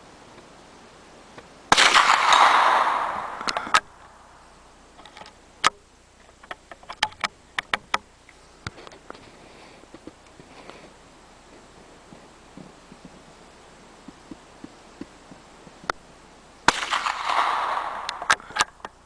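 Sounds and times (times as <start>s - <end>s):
rifle shot echoing: 1.7s - 4.5s, 16.7s - 18.4s
rifle bolt metallic clicks: 3.3s - 3.9s.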